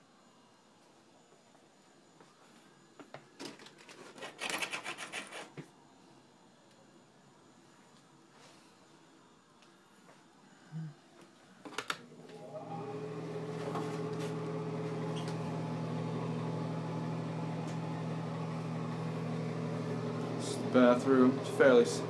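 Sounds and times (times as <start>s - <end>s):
exhaust fan humming: 12.0s - 22.0s.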